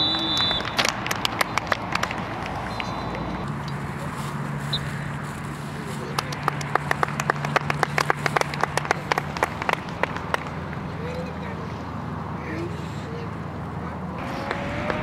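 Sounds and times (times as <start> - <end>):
handclaps: 0.0 - 3.2, 6.1 - 10.8, 14.4 - 15.0.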